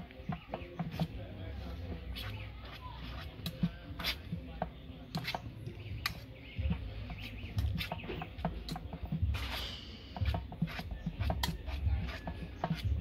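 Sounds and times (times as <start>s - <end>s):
fork scraping metal bowl: 1.9s - 4.4s, 5.1s - 13.0s
dull low thuds: 6.6s - 9.5s.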